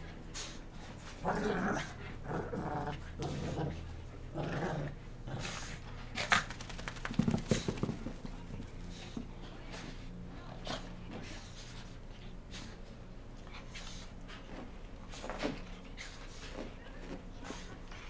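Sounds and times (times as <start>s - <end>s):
dogs growling: 0.8s - 6.6s.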